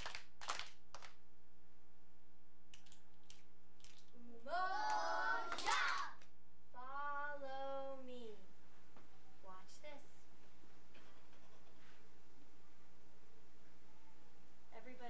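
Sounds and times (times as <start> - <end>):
hand claps: 0.0 - 1.2, 4.9 - 6.3
voices making sliding vocal sounds: 4.2 - 6.2.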